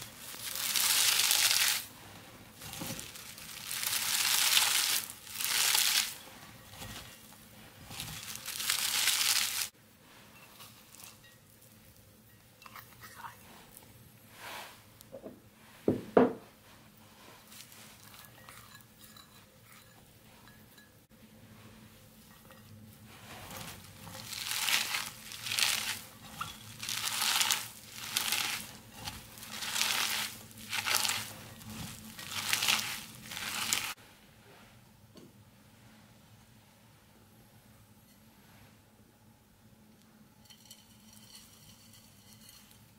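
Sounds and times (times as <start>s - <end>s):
hands kneading crunchy cabbage: 0.0s - 12.0s, 16.6s - 18.8s, 22.8s - 34.0s.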